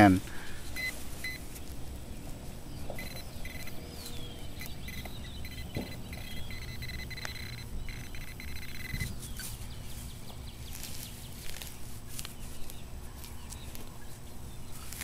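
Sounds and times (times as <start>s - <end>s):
metal detector high tone: 3.0s - 9.2s
knocks: 5.7s - 6.0s.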